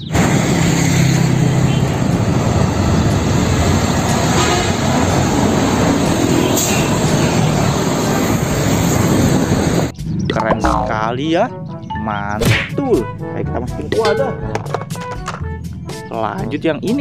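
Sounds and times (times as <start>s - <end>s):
diesel truck driving past: 0.0s - 9.9s
rush of passing traffic: 0.0s - 9.9s
tyres on road: 0.0s - 10.6s.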